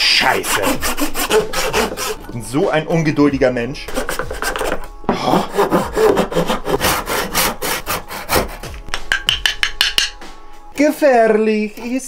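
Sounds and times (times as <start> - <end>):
hand saw cutting wood: 0.1 - 2.3, 3.9 - 8.8.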